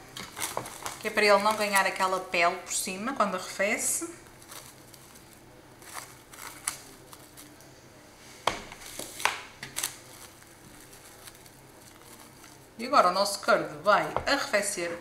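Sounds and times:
cling film crinkling: 0:00.1 - 0:02.3, 0:04.2 - 0:07.7, 0:08.8 - 0:12.9.

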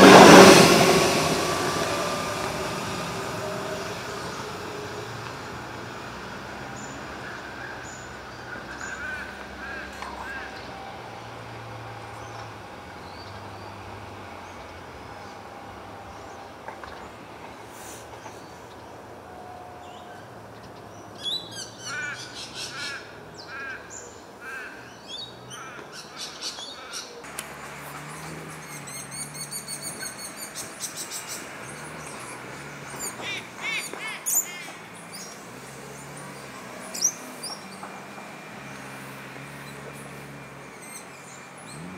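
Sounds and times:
birds chirping and trilling: 0:06.8 - 0:10.8, 0:19.8 - 0:37.9.

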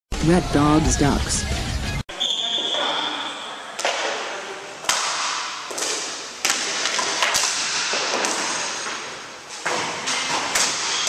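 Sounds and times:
hockey sticks clacking: 0:03.8 - 0:11.0.

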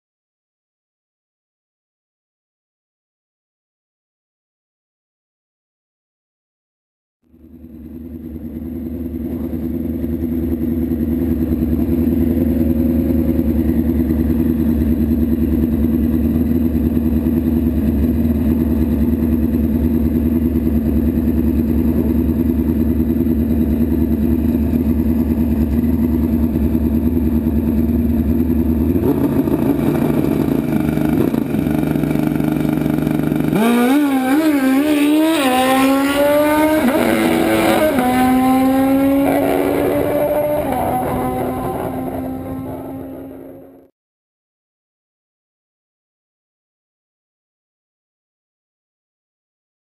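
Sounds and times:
motorcycle engines running: 0:07.3 - 0:43.9
motorcycle engine revving and accelerating: 0:07.4 - 0:43.9.

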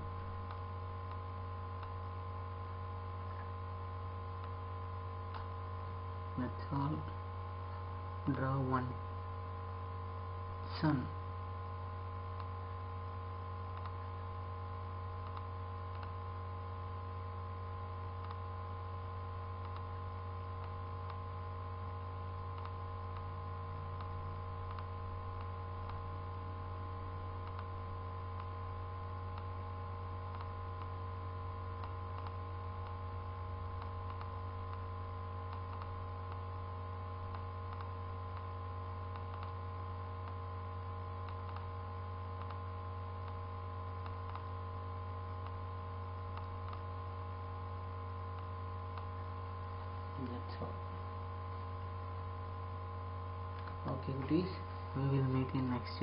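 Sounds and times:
faint steady tones: 0:00.0 - 0:56.0
steady low hum: 0:00.0 - 0:56.0
computer mouse clicks: 0:13.7 - 0:14.0, 0:15.2 - 0:16.2, 0:18.2 - 0:18.4, 0:19.6 - 0:19.9, 0:22.5 - 0:23.3, 0:24.0 - 0:26.0, 0:27.4 - 0:27.7, 0:30.3 - 0:30.9, 0:31.8 - 0:33.0, 0:33.8 - 0:34.8, 0:35.5 - 0:36.4, 0:37.3 - 0:38.5, 0:39.1 - 0:39.6, 0:41.2 - 0:41.7, 0:42.4 - 0:42.6, 0:44.0 - 0:44.5, 0:46.2 - 0:46.9, 0:53.5 - 0:53.8.

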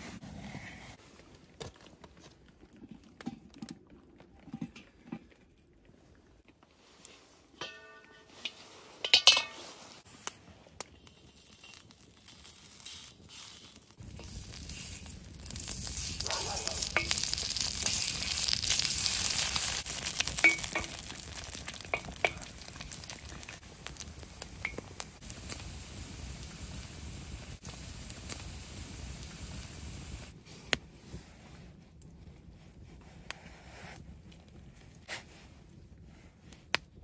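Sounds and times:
food sizzling in a pan: 0:11.4 - 0:30.3.

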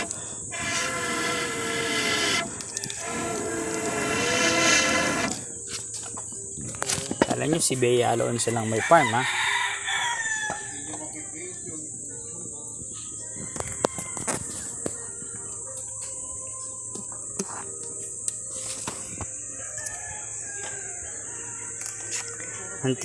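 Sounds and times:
rooster crowing: 0:00.0 - 0:05.5, 0:08.3 - 0:10.9, 0:13.3 - 0:14.8, 0:19.5 - 0:23.0
high-pitched buzz: 0:00.0 - 0:05.7.

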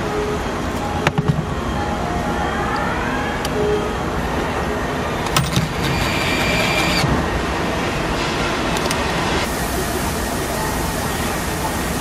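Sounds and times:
assembly plant machinery noise: 0:03.4 - 0:12.0
electric nutrunner whirring: 0:05.2 - 0:07.1.

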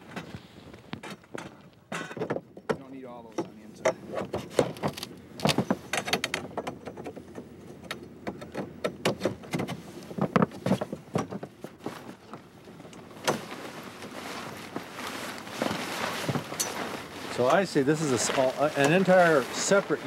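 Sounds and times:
metal poles clattering: 0:01.0 - 0:20.0
canvas rustling: 0:04.0 - 0:06.0, 0:09.7 - 0:20.0.

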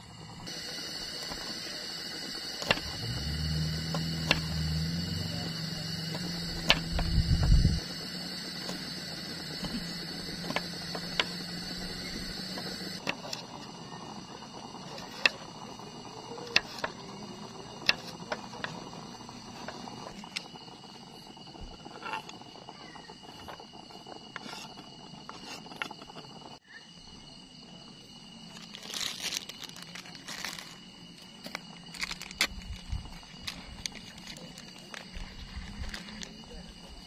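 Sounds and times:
insects trilling: 0:00.0 - 0:37.0
crinkling rustles: 0:28.5 - 0:36.3.

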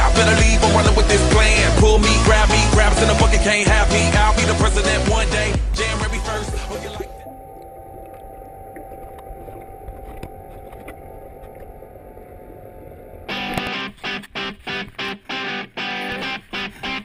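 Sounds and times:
guitar music: 0:00.0 - 0:07.2, 0:13.3 - 0:17.0
faint steady hum: 0:05.7 - 0:14.0
muffled underwater rumble: 0:06.0 - 0:15.0.

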